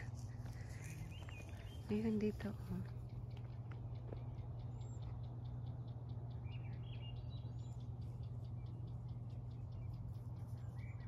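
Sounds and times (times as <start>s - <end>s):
bird calling: 0.0s - 11.0s
steady low hum: 0.0s - 11.0s.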